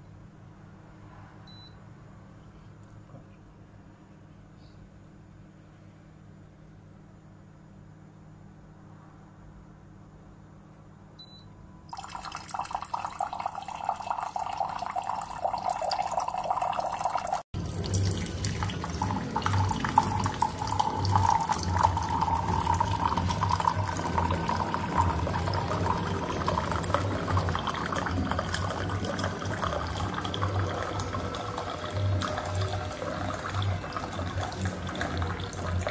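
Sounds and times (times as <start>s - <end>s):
water pouring into mug: 11.9s - 35.9s.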